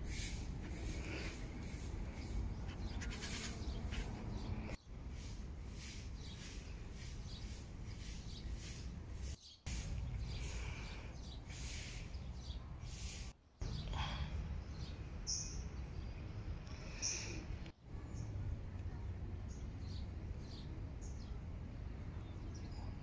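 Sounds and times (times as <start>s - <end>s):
birds chirping and calling: 0.1s - 18.3s.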